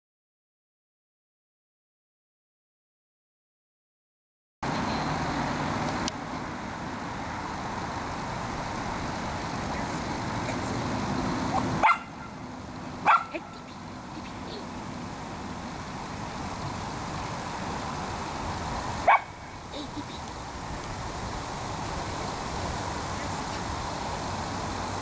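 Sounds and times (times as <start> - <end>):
background hiss: 4.7 - 25.0
dog barking: 11.5 - 12.3, 13.0 - 13.6, 19.0 - 19.4.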